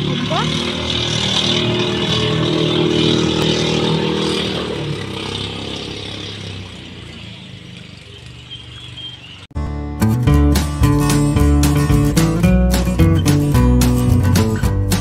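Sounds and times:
boat engine droning: 0:00.0 - 0:09.6.

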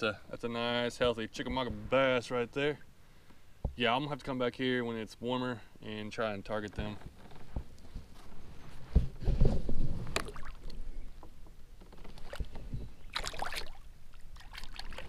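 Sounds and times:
water splashes: 0:10.2 - 0:10.8, 0:13.1 - 0:15.0.

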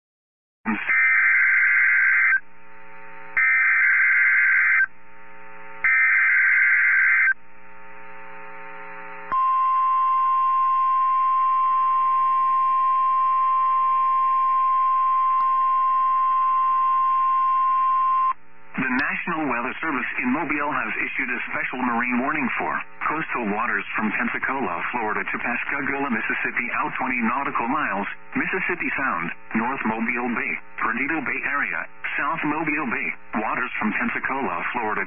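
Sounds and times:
screeching digital data bursts: 0:00.7 - 0:02.4, 0:03.4 - 0:04.9, 0:05.9 - 0:07.4
single-pitch warning alarm tone: 0:03.4 - 0:04.9, 0:05.8 - 0:07.4, 0:09.3 - 0:18.4.

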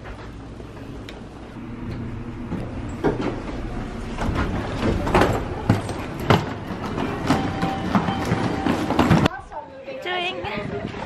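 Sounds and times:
suitcase wheels rolling on stone tiles: 0:02.9 - 0:09.4
wheels clacking on metal grate: 0:02.9 - 0:09.4.

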